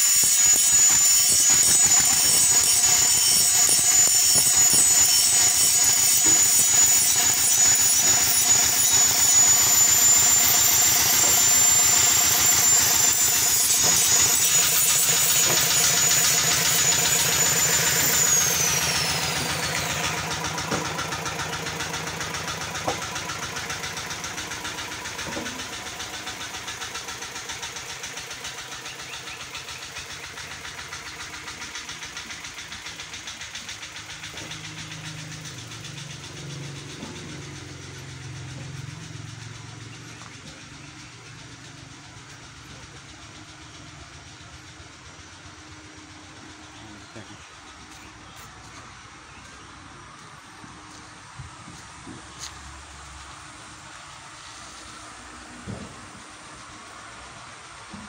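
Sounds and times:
high whine: 0.0 - 22.2
diesel engine chugging: 0.0 - 58.0.

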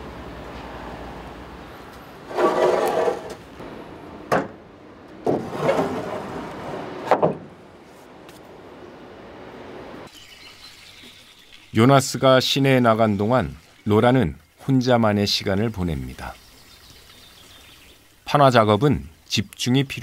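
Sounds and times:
wooden planks scraping: 2.2 - 3.5, 5.2 - 8.5.

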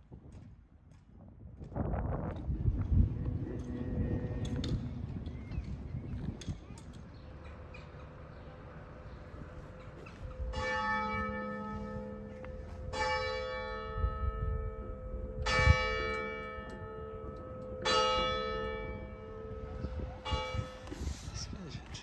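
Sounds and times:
church bell tolling: 9.7 - 20.9.

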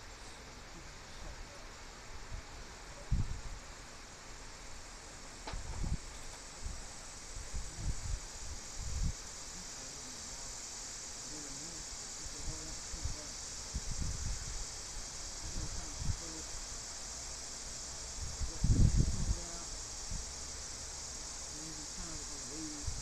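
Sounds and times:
steady high hiss: 0.0 - 23.0
faint muttering: 7.3 - 20.3, 21.1 - 23.0.

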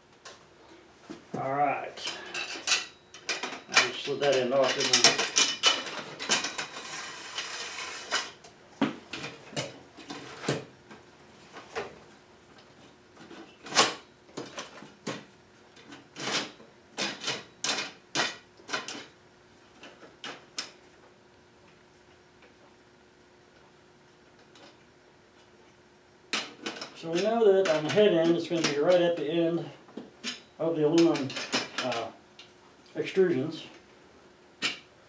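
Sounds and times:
metal parts clattering on workbench: 2.0 - 8.4, 30.2 - 32.0.

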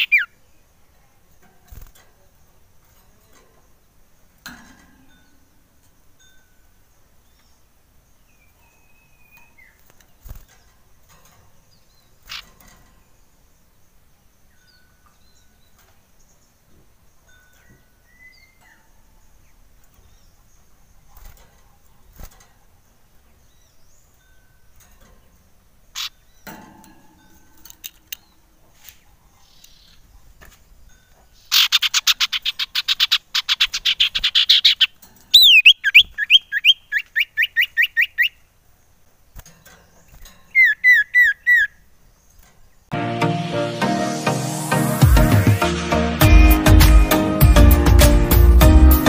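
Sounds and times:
bird singing trills and whistles: 0.0 - 0.4, 8.2 - 10.5, 17.2 - 19.0, 31.3 - 38.5, 40.0 - 41.9.

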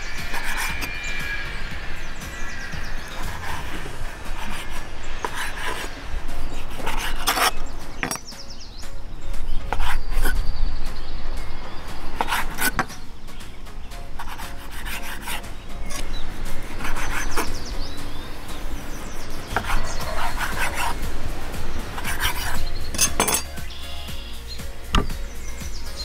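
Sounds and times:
knife slicing meat: 19.5 - 20.9.

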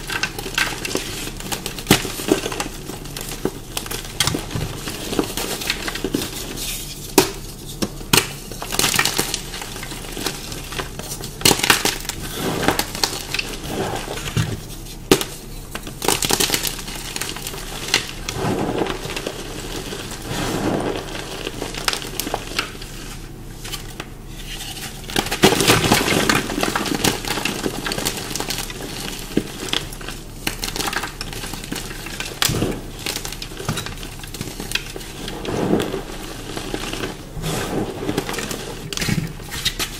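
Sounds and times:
gritty grinding: 12.0 - 14.8, 17.4 - 22.8, 35.0 - 39.8.

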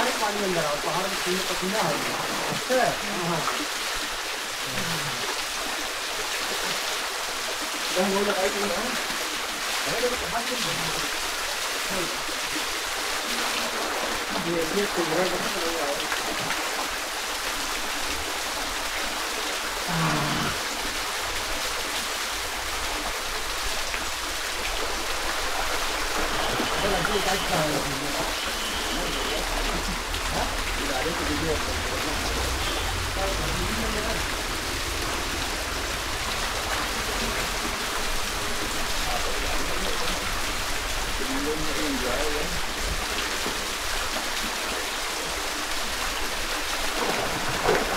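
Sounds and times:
waterfall splashing into pool: 0.0 - 47.9
person calling out: 19.9 - 20.6.

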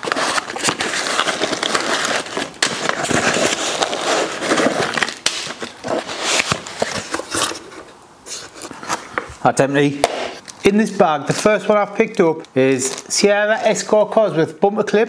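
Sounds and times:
plastic bag crinkling: 0.0 - 7.7, 10.4 - 13.9
cardboard mailer rustling: 0.0 - 9.2.

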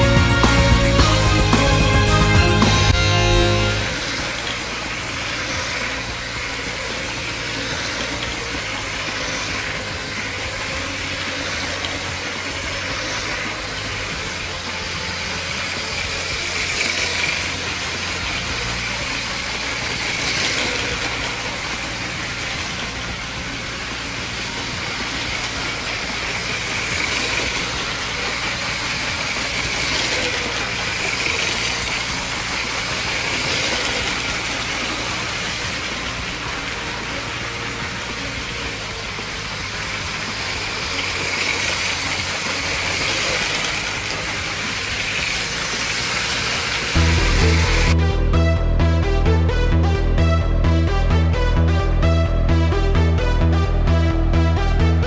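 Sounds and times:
toy train motor whirring: 2.1 - 48.0.

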